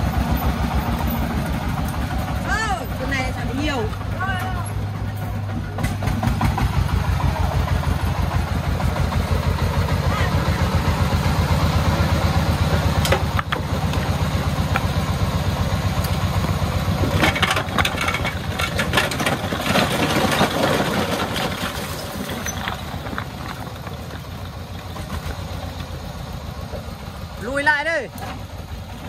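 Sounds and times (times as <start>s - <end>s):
diesel engine running: 0.0s - 29.0s
concrete blocks clattering onto ground: 17.0s - 23.8s.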